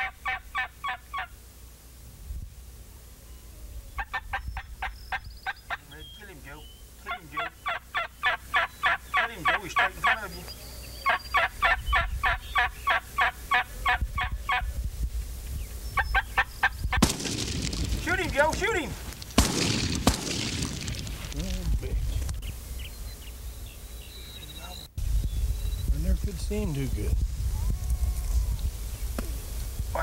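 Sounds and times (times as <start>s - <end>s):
turkey call yelping: 0.0s - 1.4s, 3.9s - 14.7s, 16.0s - 17.1s
loud shotgun shot: 17.0s - 18.7s, 19.3s - 21.6s.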